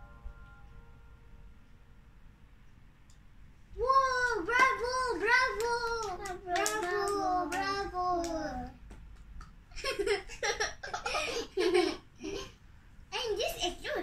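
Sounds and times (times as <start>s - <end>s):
child singing: 3.8s - 8.8s.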